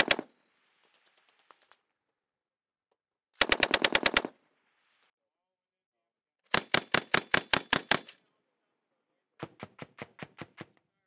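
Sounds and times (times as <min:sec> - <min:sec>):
machine gun bursts: 0:03.4 - 0:04.3.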